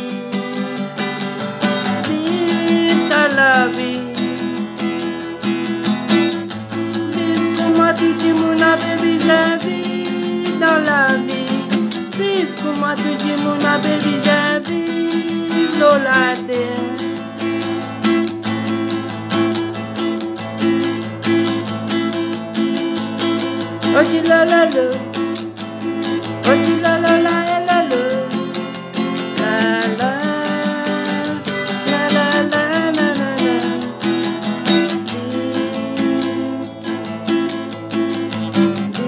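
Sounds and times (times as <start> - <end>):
man singing: 0.0 - 0.9, 1.8 - 4.4, 6.9 - 17.2, 23.8 - 25.1, 26.4 - 28.5, 29.2 - 33.9, 34.8 - 37.0
acoustic guitar strumming: 0.0 - 39.0.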